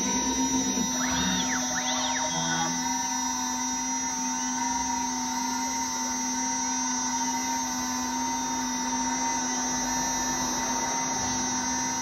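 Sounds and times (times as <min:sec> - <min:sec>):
machine spindle whine: 0:00.0 - 0:12.0.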